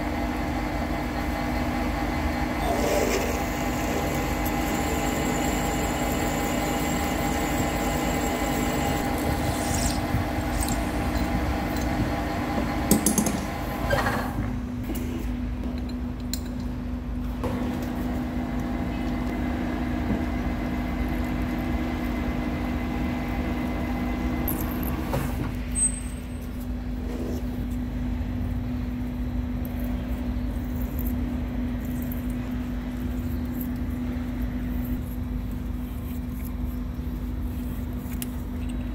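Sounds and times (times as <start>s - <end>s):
steady machine tones: 0.0s - 14.0s
motor hum: 0.0s - 14.6s.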